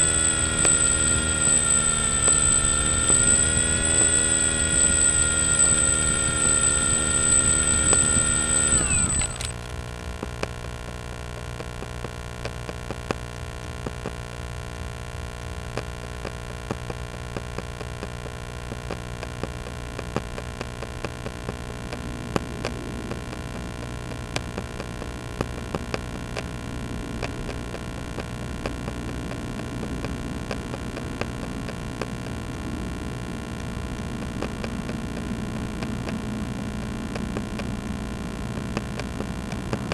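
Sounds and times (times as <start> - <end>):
faint clicks: 0.0 - 9.6
small motor whining: 0.0 - 9.6
steady quiet hum: 0.0 - 39.9.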